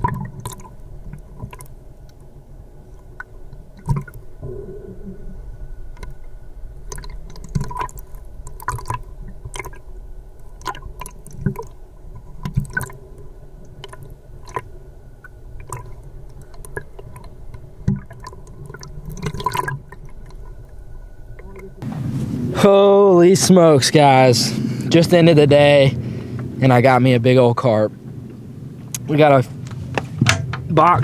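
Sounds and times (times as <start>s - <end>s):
underwater water rumble: 0.0s - 22.7s
underwater clicks and pops: 3.2s - 4.8s, 5.9s - 6.2s, 6.8s - 9.8s, 10.5s - 13.0s.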